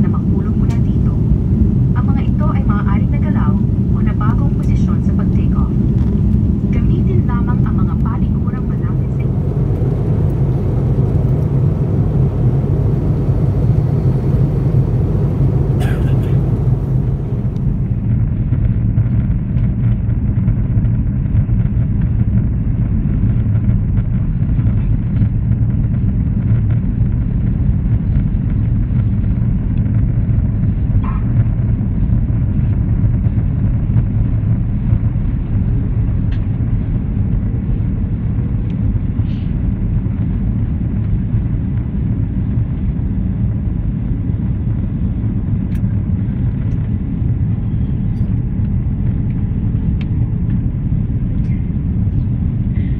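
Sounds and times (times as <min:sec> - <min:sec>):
rushing airflow: 0:00.0 - 0:18.5
jet engine rumble: 0:00.0 - 0:52.9.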